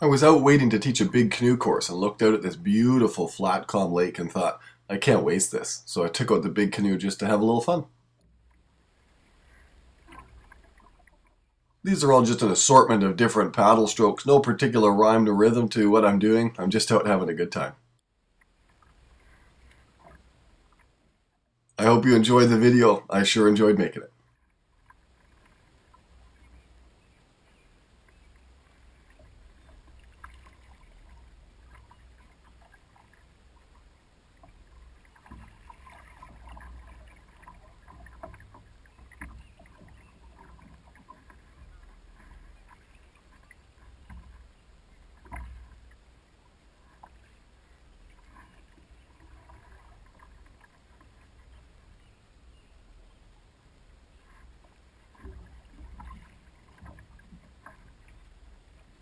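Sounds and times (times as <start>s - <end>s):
paddle swishes and splashes: 8.6s - 11.5s, 18.4s - 21.0s, 24.3s - 52.6s, 53.8s - 59.0s.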